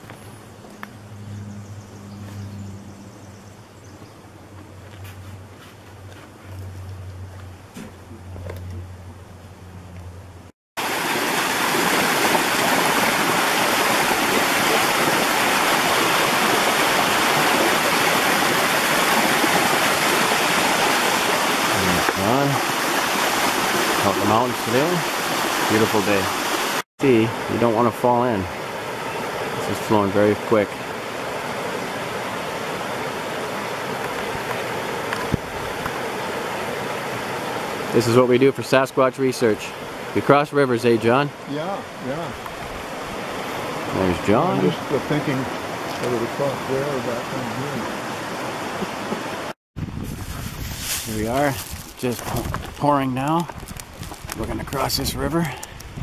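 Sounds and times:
creek rushing over rocks: 0:10.8 - 0:49.6.

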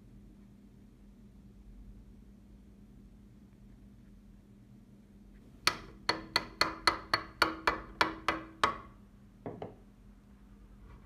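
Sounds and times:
hammer tapping on steel: 0:05.6 - 0:08.9.

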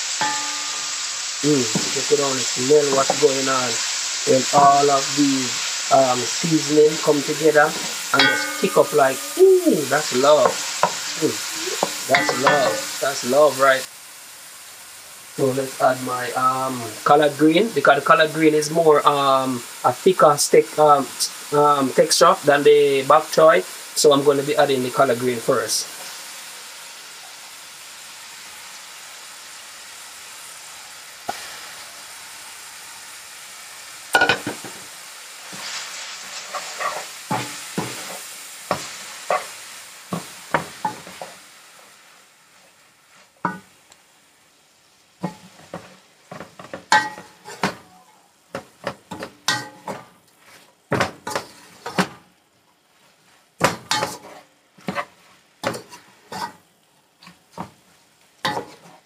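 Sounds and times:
vegetables sizzling in oil: 0:00.0 - 0:59.0
wooden spoon scraping a pan: 0:06.4 - 0:09.3, 0:09.9 - 0:13.0, 0:35.5 - 0:41.4, 0:49.1 - 0:52.1, 0:53.2 - 0:56.6, 0:58.4 - 0:59.0.

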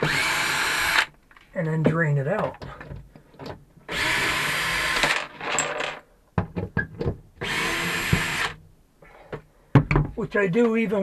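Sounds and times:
power drill bursts: 0:00.0 - 0:01.1, 0:03.9 - 0:05.3, 0:07.4 - 0:08.6.

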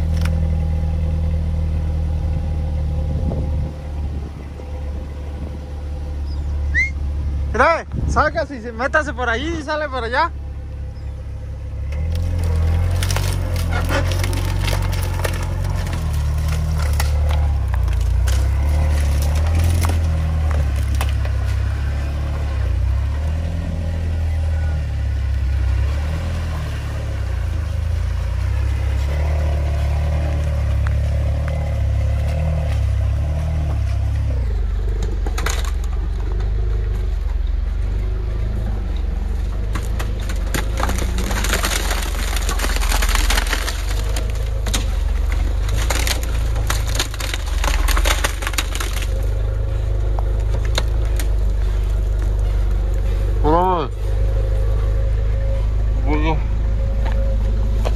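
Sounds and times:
dry reeds snapping under tyres: 0:00.0 - 0:00.7, 0:11.8 - 0:55.8, 0:56.8 - 0:57.9
car engine running: 0:00.0 - 0:57.9.

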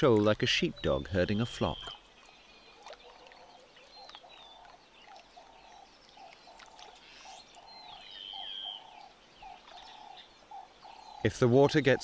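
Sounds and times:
birds chirping: 0:00.0 - 0:12.0
clear whistled bird call: 0:00.8 - 0:02.0.

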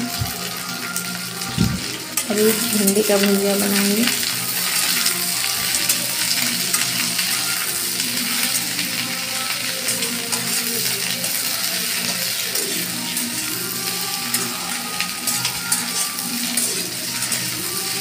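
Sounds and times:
okra sizzling in oil: 0:00.0 - 0:18.0
metal spatula scraping pan: 0:15.3 - 0:17.8.

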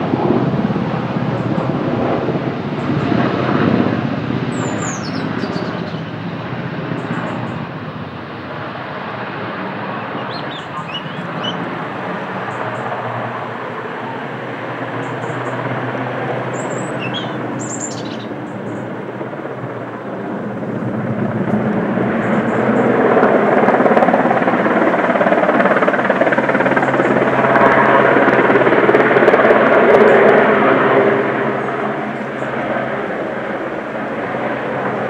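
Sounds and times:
helicopter rotor and engine: 0:00.0 - 0:35.0
bird chirps: 0:04.5 - 0:06.1, 0:10.0 - 0:11.6, 0:16.5 - 0:18.8.

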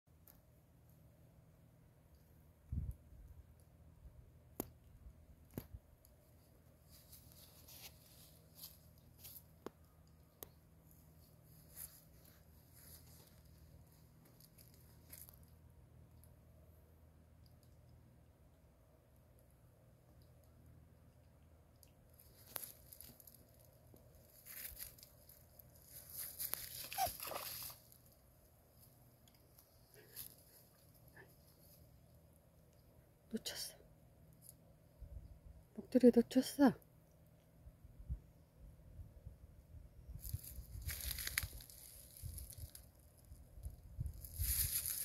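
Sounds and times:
leaves rustling and crunching: 0:22.2 - 0:28.1, 0:40.2 - 0:43.4, 0:44.0 - 0:45.0.

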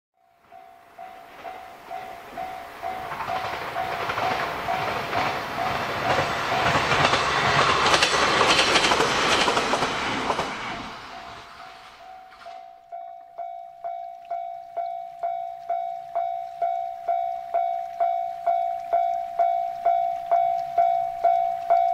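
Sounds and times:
level crossing bell ringing: 0:00.5 - 0:05.8, 0:11.1 - 0:21.9
train wheels clattering on rails: 0:01.2 - 0:12.6.

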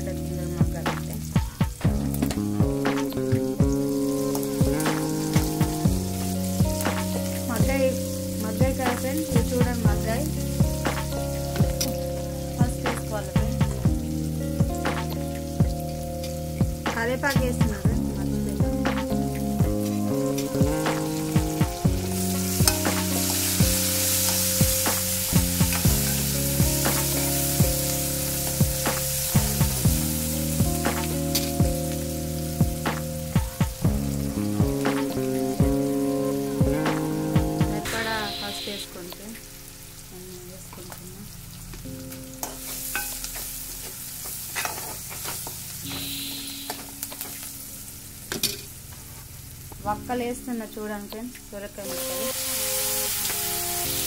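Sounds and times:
low steady tones: 0:00.0 - 0:44.4
background music: 0:00.0 - 0:48.3, 0:49.8 - 0:54.0
onions sizzling in oil: 0:00.0 - 0:54.0
spoon scraping a pan: 0:42.4 - 0:43.5.

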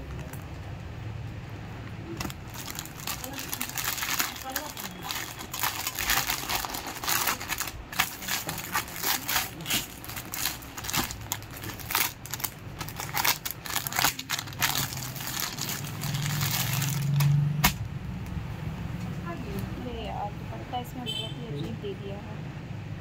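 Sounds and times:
plastic packets crinkling: 0:02.1 - 0:17.7.

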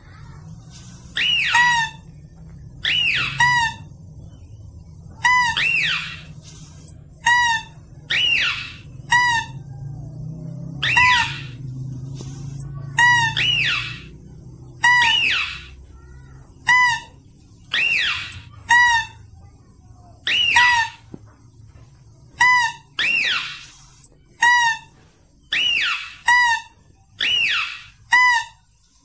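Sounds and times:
faint low hum: 0:00.0 - 0:29.0
animal lure call squeaks: 0:00.9 - 0:04.1, 0:05.2 - 0:09.6, 0:10.8 - 0:11.6, 0:12.3 - 0:19.3, 0:20.2 - 0:21.1, 0:22.4 - 0:28.7.

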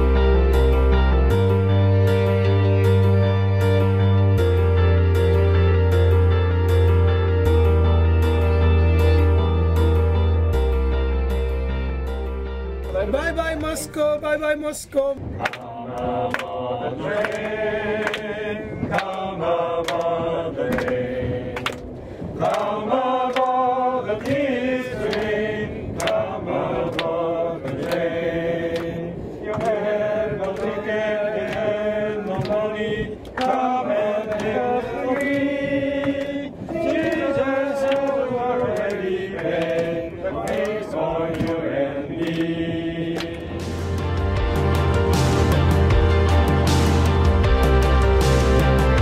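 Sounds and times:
group singing a hymn: 0:15.2 - 0:44.3.

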